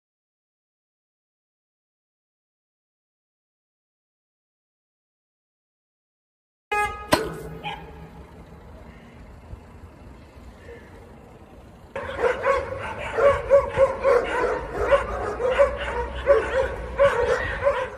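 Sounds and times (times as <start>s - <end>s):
dogs barking and yipping: 7.4s - 8.2s, 11.9s - 17.9s.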